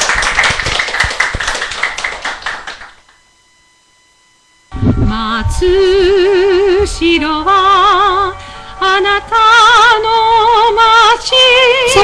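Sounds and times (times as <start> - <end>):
hand clapping: 0.0 - 3.2
music with vibrato melody: 4.7 - 12.0.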